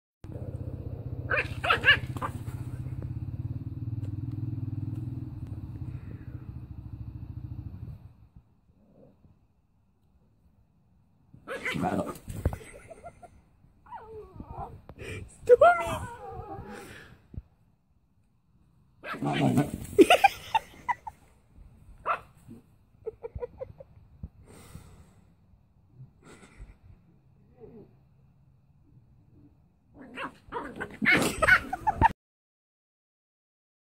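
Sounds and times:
puppy growling: 0.3 - 2.9, 11.5 - 13.2, 19.0 - 20.1, 29.4 - 32.1
puppy barking: 1.2 - 2.6, 22.0 - 22.3.

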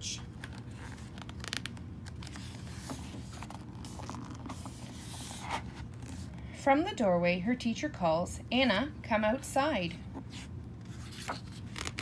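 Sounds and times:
paper rustling and sliding: 0.4 - 6.3, 10.3 - 12.0.

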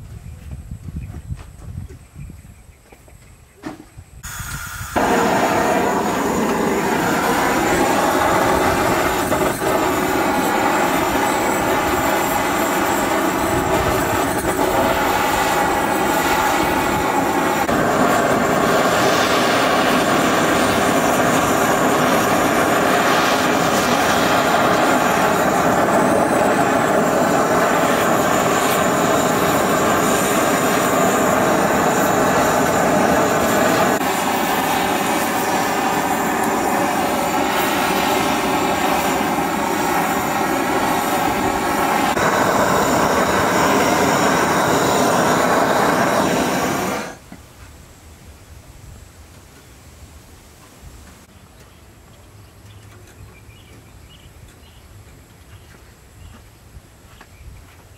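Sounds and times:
torch flame rushing: 4.2 - 47.2.

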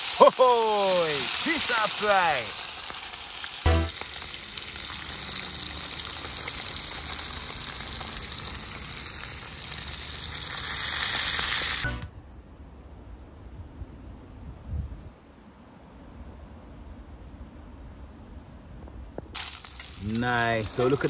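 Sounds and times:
fish deep-frying in oil sizzling: 0.0 - 11.9, 19.4 - 21.0.

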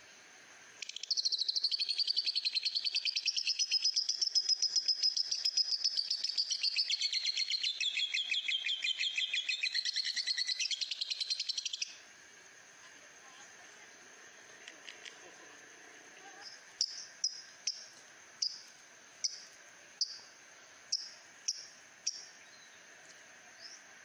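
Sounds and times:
lovebird chattering trill: 0.8 - 12.0, 16.4 - 18.6.

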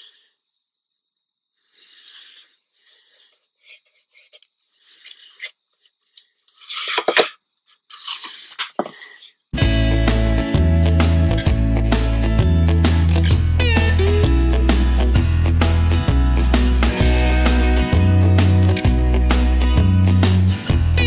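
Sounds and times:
scratchy brush strokes: 2.8 - 5.5.

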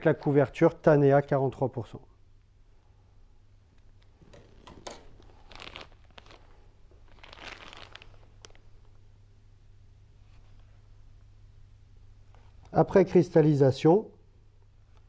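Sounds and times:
plastic piping bag crinkling: 3.9 - 9.0.

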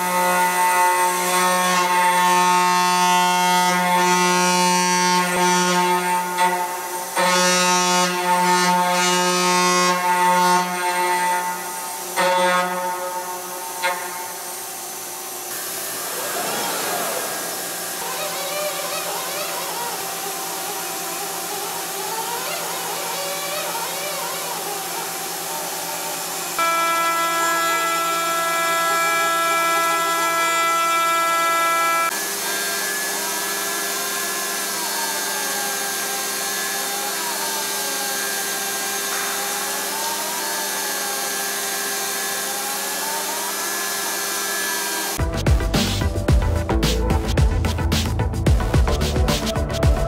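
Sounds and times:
milling machine spindle whine: 13.4 - 45.2.

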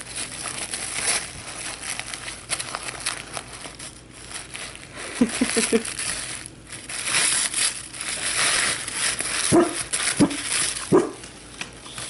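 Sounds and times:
dog tearing wrapping paper: 0.0 - 12.0.

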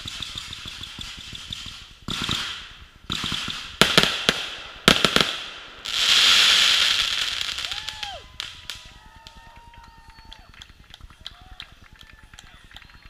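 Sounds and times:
firework launches: 0.0 - 10.1
firework bangs: 0.0 - 10.5
loud long hiss: 4.0 - 10.0.

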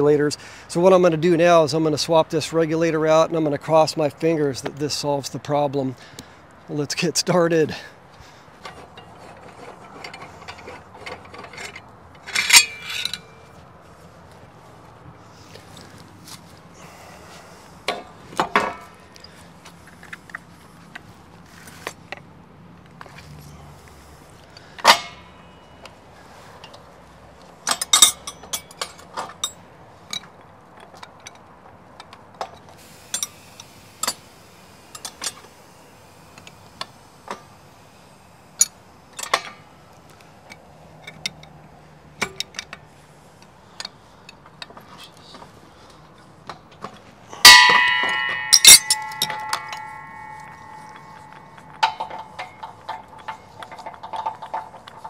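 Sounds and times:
ringing metal clangs: 12.3 - 13.6, 47.4 - 55.0
tools clicking and tapping: 27.6 - 31.4, 40.4 - 41.6, 42.2 - 45.5, 46.5 - 55.0.

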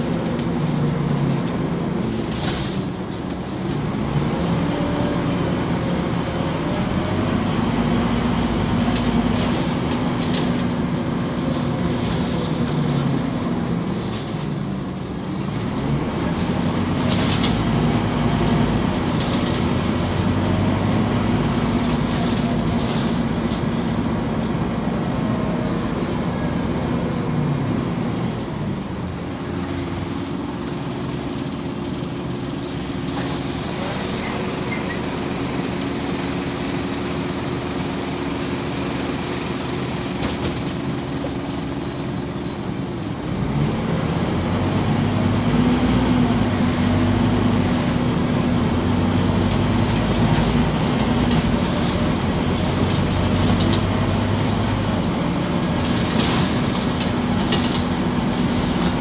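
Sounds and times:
bus body knocks and rattles: 0.0 - 4.0, 39.8 - 43.1, 49.2 - 59.0
bus engine: 0.0 - 59.0.

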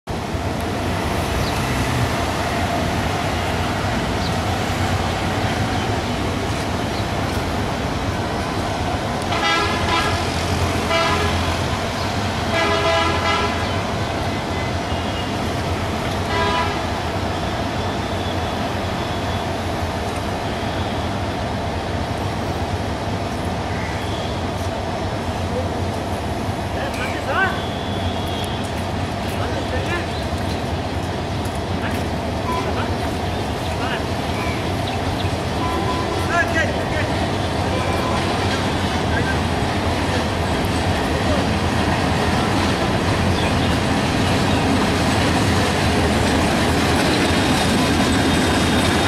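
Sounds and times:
diesel locomotives rumbling: 0.1 - 49.0
train horn blasts: 9.3 - 11.6, 12.5 - 13.7, 16.3 - 16.9.

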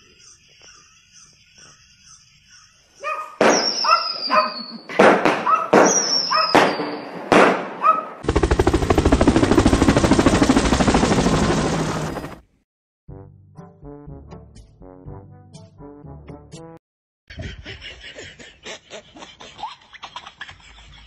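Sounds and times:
sharp bangs: 3.4 - 4.0, 4.9 - 7.8
falling high whistle: 3.4 - 4.9, 5.8 - 7.1.

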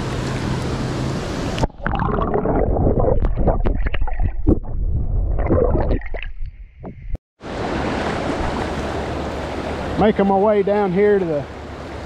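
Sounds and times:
water gurgling and splashing: 1.6 - 7.0.

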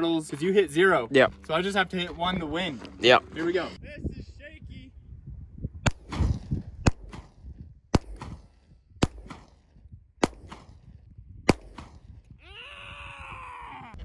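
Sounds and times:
pistol shots with echo: 5.9 - 10.8, 11.5 - 12.1.

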